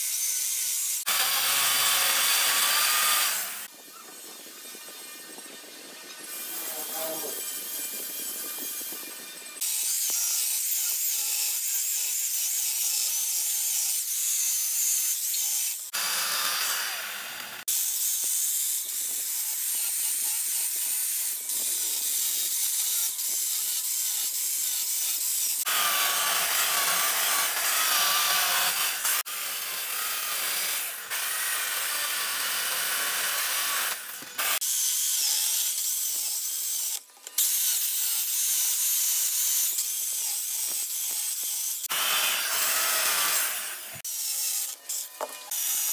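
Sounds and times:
chainsaw cutting wood: 1.0 - 5.2, 6.2 - 45.9.

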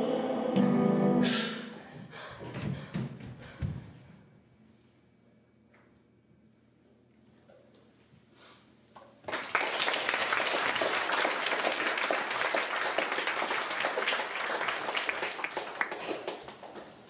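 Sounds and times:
audience applauding: 9.2 - 17.0.

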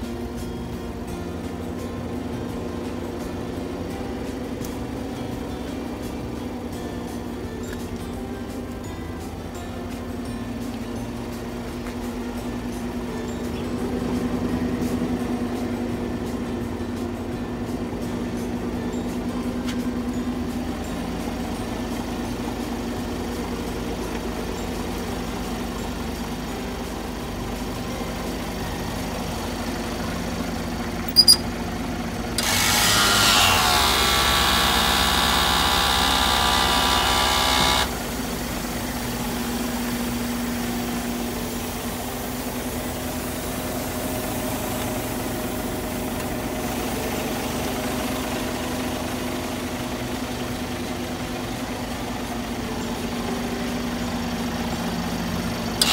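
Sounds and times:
truck diesel engine idling: 11.4 - 32.5, 33.8 - 55.9.

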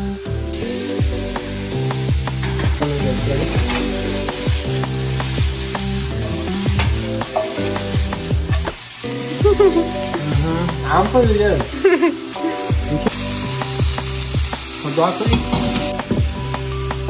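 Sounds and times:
background music with deep bass: 0.0 - 17.0
broccoli sizzling in a skillet: 0.5 - 17.0.

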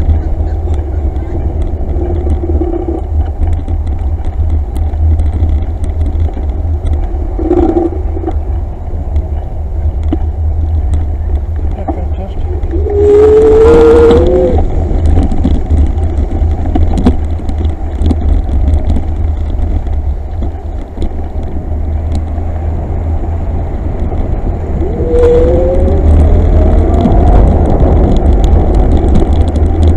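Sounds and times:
rising whine: 0.0 - 5.0, 6.5 - 9.4, 11.8 - 16.0, 22.0 - 29.9
wind rumbling on microphone: 0.0 - 29.9.

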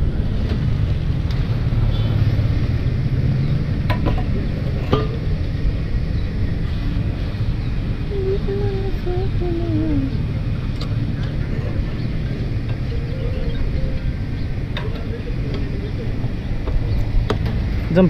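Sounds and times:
motorcycle idling: 0.0 - 18.0.

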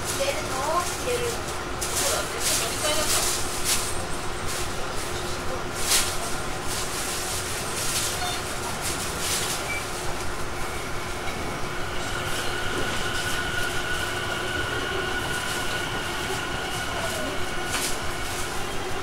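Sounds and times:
train wheels rumbling on rail: 0.0 - 19.0
high steady whining tones: 10.4 - 19.0.

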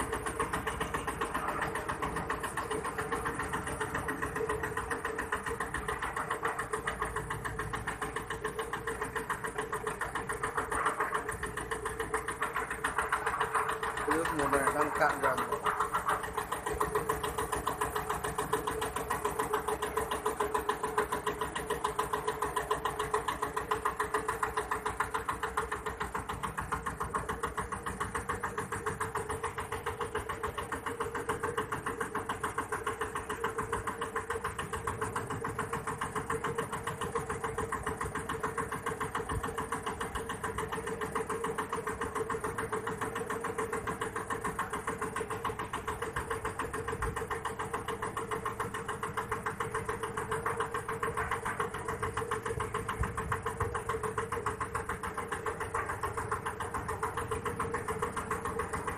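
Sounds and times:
small boat engine puttering: 0.0 - 58.9.

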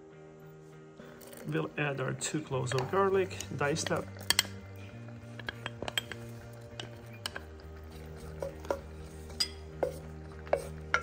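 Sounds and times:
wooden spoon scraping and stirring: 1.0 - 11.0
spoon knocking on bowl and pan: 5.4 - 11.0.

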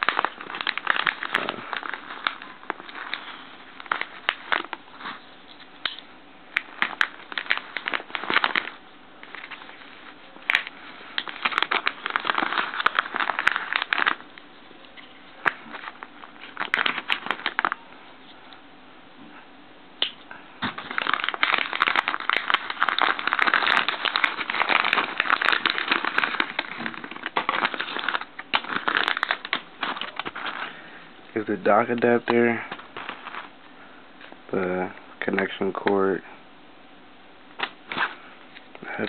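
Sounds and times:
paper pouch crinkling: 0.0 - 17.8, 20.6 - 33.6.

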